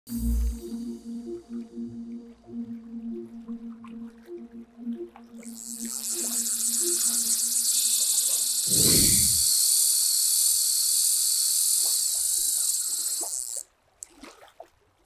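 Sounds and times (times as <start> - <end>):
high-pitched buzzing hiss: 0.1 - 1.2, 5.4 - 13.6.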